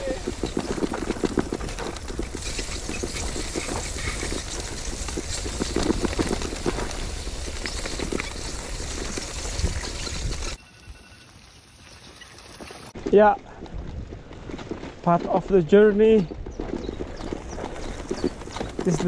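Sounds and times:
bike rattling over bumps: 0:00.0 - 0:10.6, 0:12.4 - 0:19.0
bike tyres swishing through mud: 0:00.0 - 0:10.6
wind rumbling on microphone: 0:00.0 - 0:10.6, 0:12.9 - 0:19.0.

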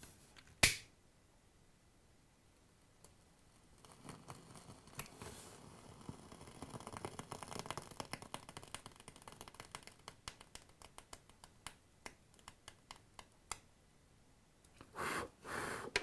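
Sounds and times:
short soft hiss: 0:14.8 - 0:16.0.

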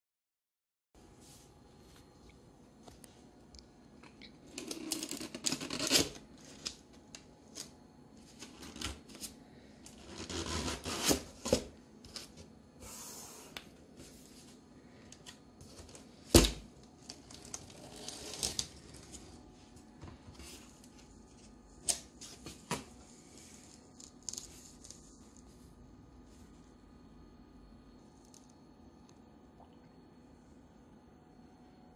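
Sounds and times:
cardboard and paper rustling: 0:14.0 - 0:25.6.

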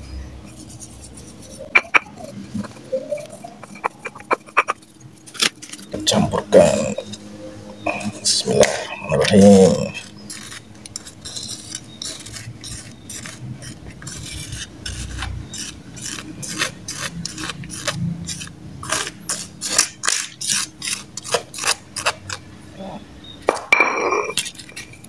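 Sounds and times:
bait mixture stirred in bowl: 0:08.1 - 0:22.4.

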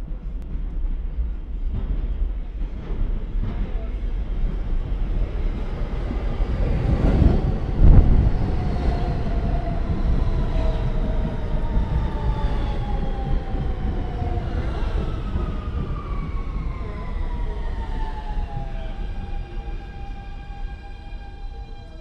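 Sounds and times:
subway train rumbling: 0:00.0 - 0:22.0.

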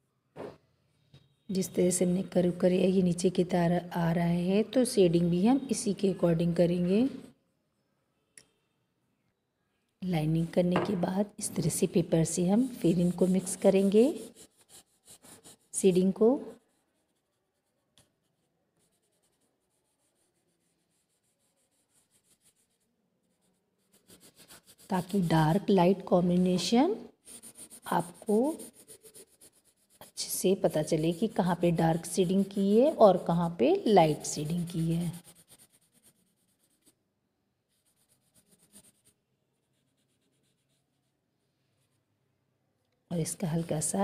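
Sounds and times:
paper rubbing on paper: 0:11.6 - 0:25.7, 0:27.2 - 0:37.0, 0:37.7 - 0:41.1.

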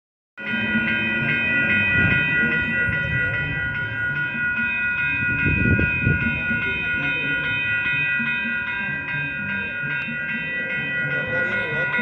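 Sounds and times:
low traffic rumble: 0:00.4 - 0:12.0
railroad crossing bell ringing: 0:00.4 - 0:12.0.

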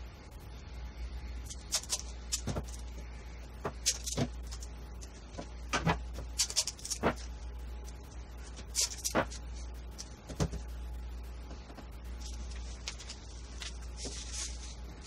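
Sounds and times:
low hum: 0:00.0 - 0:15.0
masking tape pulled and torn: 0:06.2 - 0:07.3, 0:08.6 - 0:10.2.

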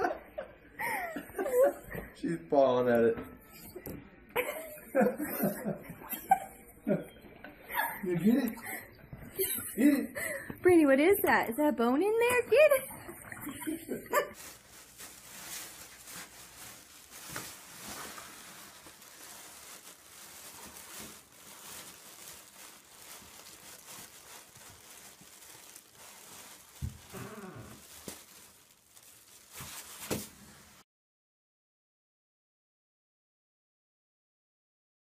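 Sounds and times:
plastic bag crinkling: 0:12.0 - 0:30.8.

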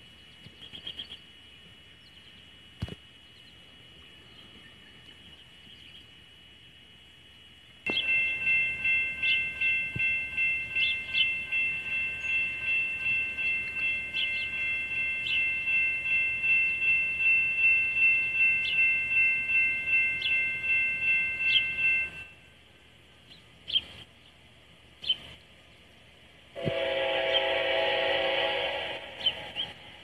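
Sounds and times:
railroad crossing bell ringing: 0:07.9 - 0:22.9, 0:26.6 - 0:30.0.

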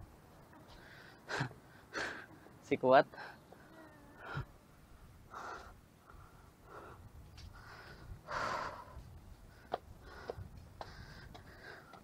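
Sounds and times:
man breathing hard: 0:05.2 - 0:12.0.

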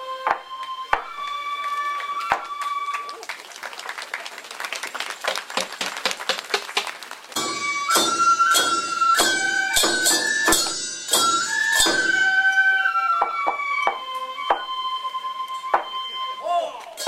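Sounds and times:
flute melody: 0:00.0 - 0:03.4, 0:07.4 - 0:17.0
applause: 0:01.1 - 0:07.6
loud drum strikes: 0:07.4 - 0:12.1.

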